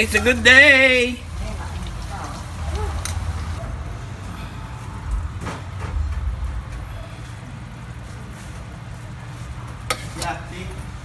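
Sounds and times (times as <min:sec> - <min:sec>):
steady low rumble: 0:01.3 - 0:09.7
ladle scraping a pan: 0:09.9 - 0:10.5.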